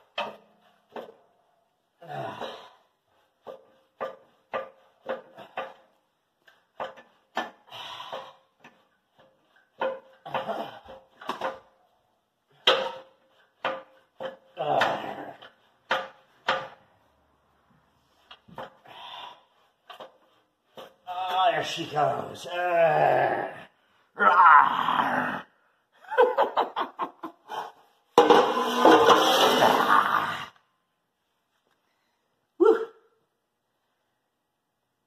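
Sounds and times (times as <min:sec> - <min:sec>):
metallic clunks and knocks: 0:12.5 - 0:16.8, 0:28.2 - 0:29.6
metal scrapes: 0:28.1 - 0:30.2.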